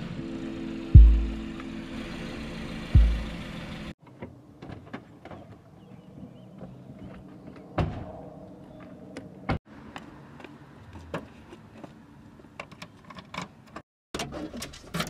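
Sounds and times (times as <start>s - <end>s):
music with deep booming hit: 0.9s - 1.5s, 3.0s - 3.4s.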